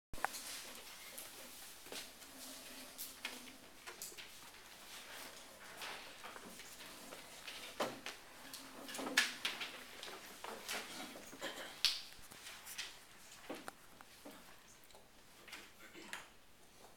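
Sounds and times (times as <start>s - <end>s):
paper sheet rustling: 0.2s - 11.3s.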